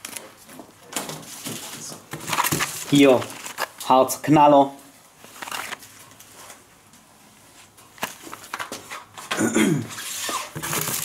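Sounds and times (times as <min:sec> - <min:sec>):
packaging rustling and clicking: 0:00.0 - 0:03.9, 0:05.2 - 0:06.6, 0:07.9 - 0:09.4, 0:10.0 - 0:11.0.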